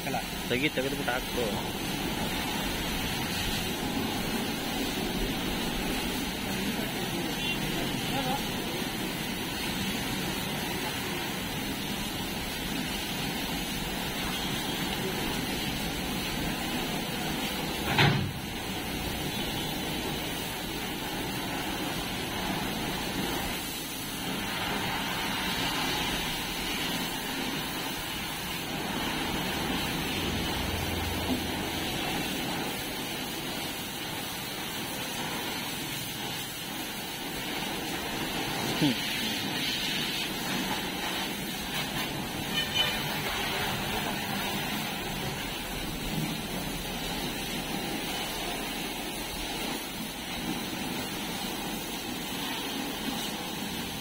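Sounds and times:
water spraying from a hose: 0.0 - 54.0
sharp knock: 17.9 - 18.4.

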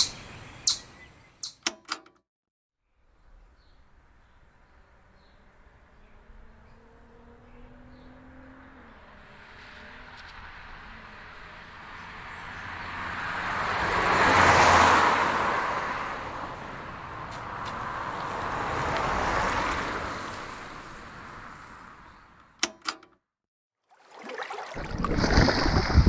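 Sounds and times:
sharp clicks: 1.4 - 2.2, 22.6 - 23.2
cars passing by: 3.8 - 23.1.

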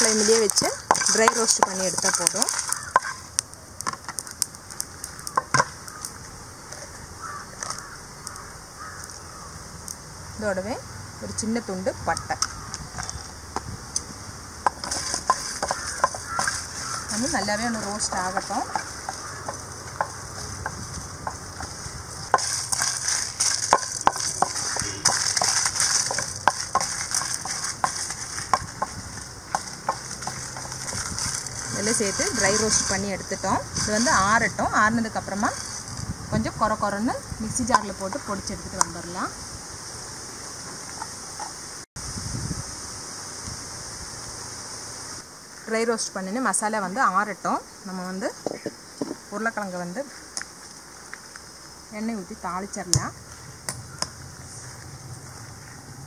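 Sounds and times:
spices crackling in a dry pan: 0.0 - 39.3.

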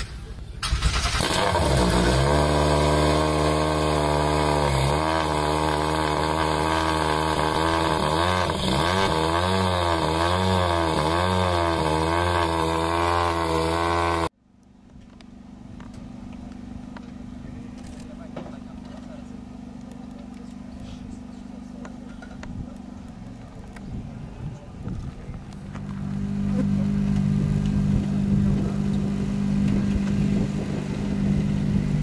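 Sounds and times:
car engine revving: 0.6 - 14.3, 18.0 - 32.0
steady low hum: 14.3 - 32.0.

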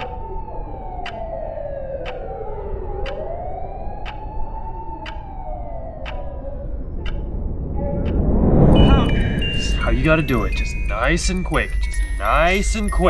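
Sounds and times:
siren wailing: 0.0 - 13.0
sharp ticks: 1.0 - 1.4, 2.0 - 2.4, 3.0 - 3.3, 4.0 - 6.3, 7.0 - 8.3
steady low rumble: 2.9 - 13.0.

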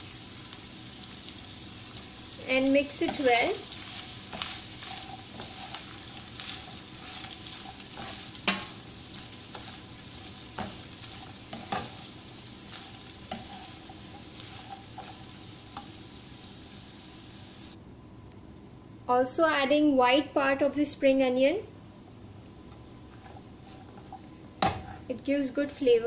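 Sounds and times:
vegetables sizzling in oil: 0.0 - 17.8
spatula knocking and scraping pan: 2.9 - 16.0, 23.1 - 25.0.

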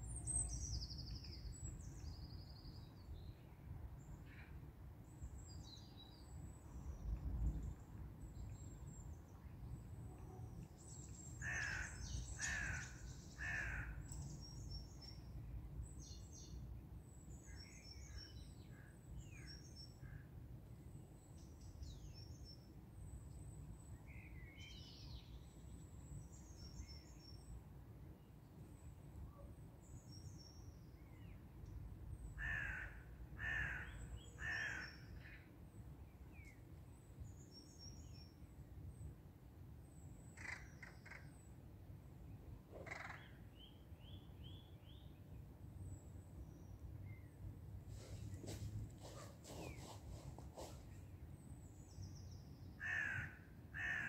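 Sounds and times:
crow cawing: 11.4 - 13.9, 32.4 - 34.9, 52.8 - 54.0
small birds chirping: 47.9 - 52.6.

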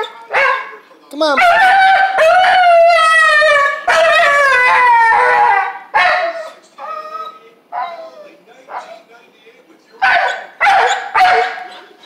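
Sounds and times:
dog howling: 1.4 - 9.0.

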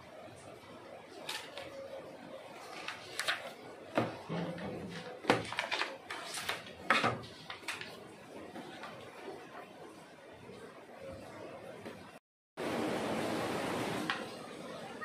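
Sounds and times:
paper rustling: 2.6 - 3.6, 4.9 - 8.0.

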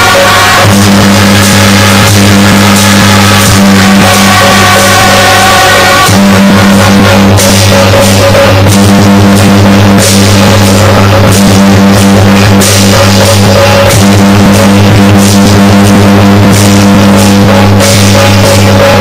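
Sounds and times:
overdriven percussion-heavy music: 0.0 - 19.0.

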